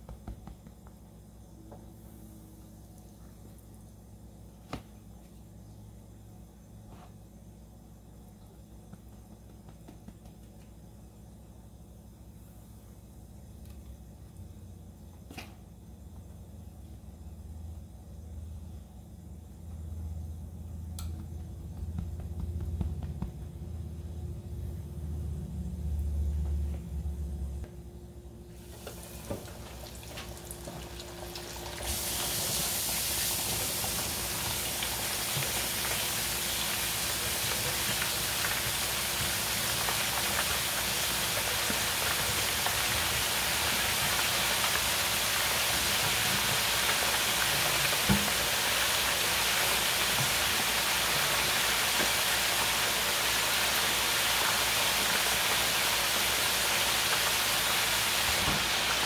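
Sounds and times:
oil sizzling in deep fryer: 28.4s - 59.0s.

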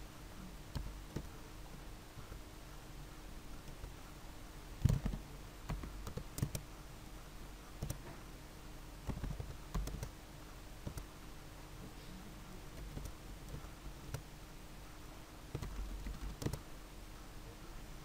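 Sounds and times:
faint steady background hum: 0.0s - 18.0s
keyboard keystrokes: 4.8s - 6.6s, 9.1s - 10.1s, 10.8s - 11.1s, 12.8s - 14.2s, 15.5s - 16.6s
mouse clicks: 4.8s - 6.6s, 10.8s - 11.1s, 15.6s - 16.6s.

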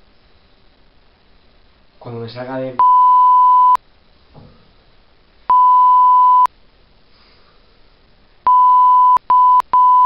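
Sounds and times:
censor bleep: 2.8s - 3.8s, 5.5s - 6.5s, 8.5s - 10.0s.

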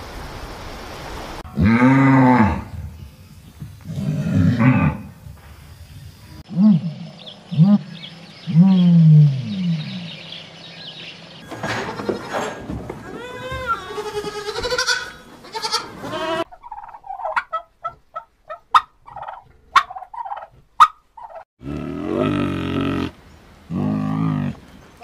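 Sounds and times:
goat bleating: 11.5s - 16.5s
turkey calling: 13.2s - 21.4s.

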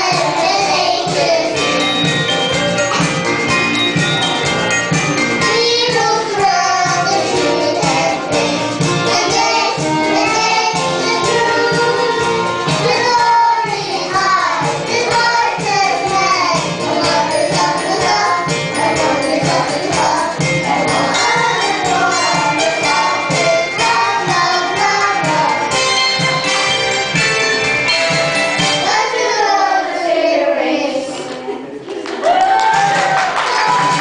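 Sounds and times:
children's choir singing: 0.0s - 3.1s, 3.8s - 26.5s, 28.6s - 31.8s
instrumental accompaniment: 0.0s - 30.2s.

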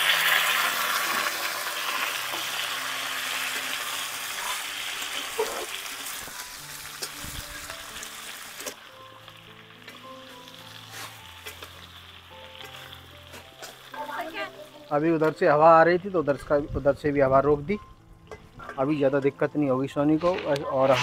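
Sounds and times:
slices frying in hot oil: 0.0s - 16.4s.

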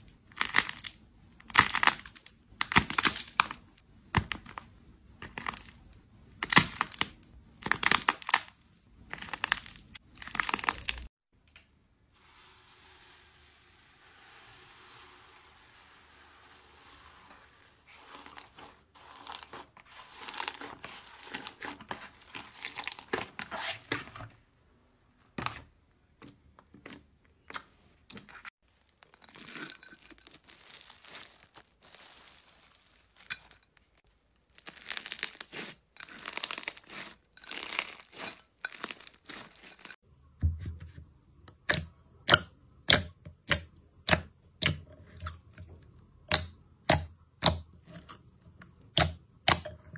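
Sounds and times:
slime crackling: 29.3s - 33.3s, 34.5s - 40.0s.

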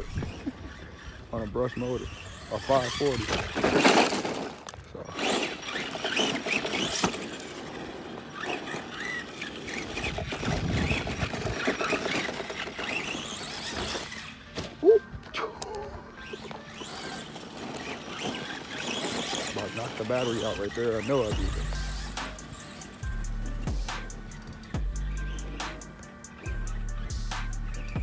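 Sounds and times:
tires scrubbing on pavement: 0.0s - 14.8s, 16.2s - 23.0s
electric motor whining: 0.0s - 28.0s.

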